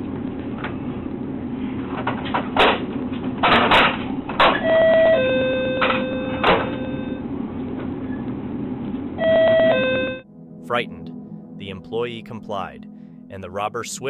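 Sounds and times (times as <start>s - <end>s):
steady background hum: 0.0s - 14.0s
electronic two-note tone: 4.6s - 7.3s, 9.2s - 12.0s.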